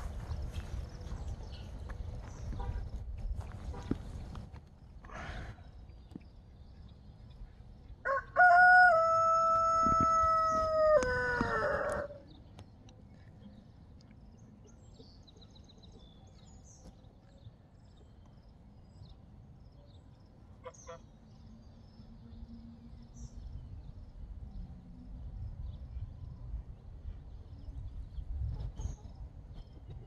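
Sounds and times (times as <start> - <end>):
rooster crowing: 8.0 - 12.2.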